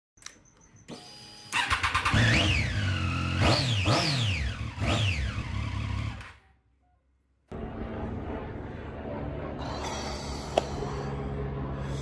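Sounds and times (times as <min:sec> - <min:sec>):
motorcycle engine revving: 0:01.5 - 0:06.4.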